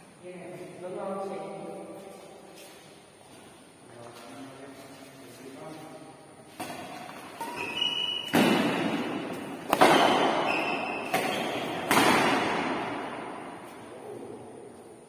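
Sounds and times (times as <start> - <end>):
racket striking shuttlecock: 6.5 - 13.8.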